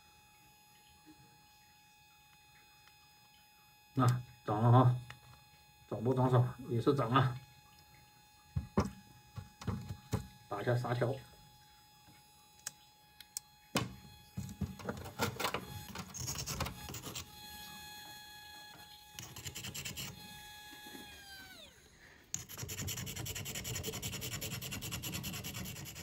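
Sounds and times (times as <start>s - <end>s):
machine humming: 0.0s - 26.0s
sanding stick rubbing on stone: 19.2s - 20.2s, 22.4s - 26.0s.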